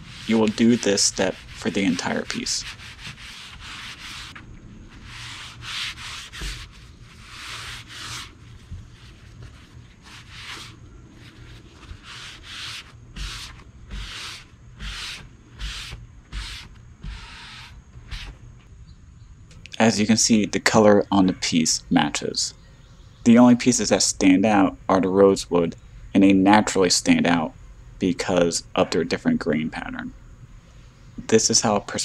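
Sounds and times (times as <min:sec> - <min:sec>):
cloth wiping wooden surface: 0:00.0 - 0:18.3.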